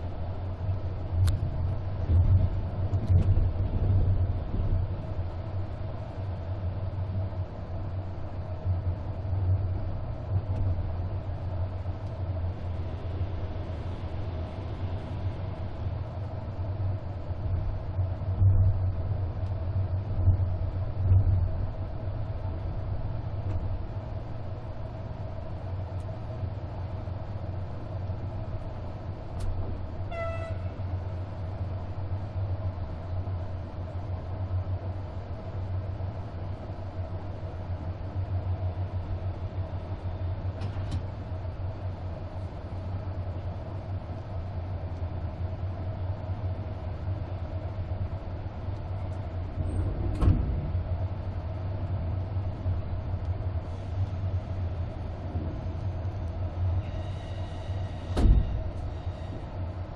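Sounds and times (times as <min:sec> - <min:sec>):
faint steady hum: 0:00.0 - 0:59.9
train wheels rumbling on track: 0:00.0 - 0:59.9.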